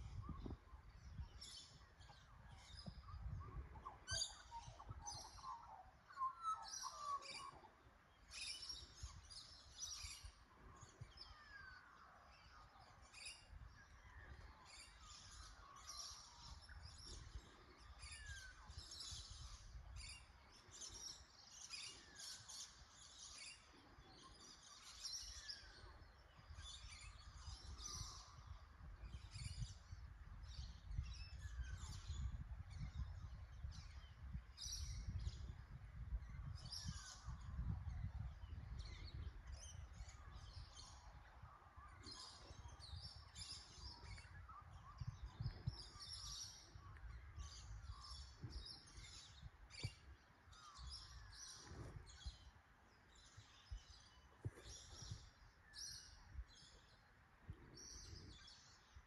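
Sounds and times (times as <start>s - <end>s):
birds chirping: 30.4s - 59.0s.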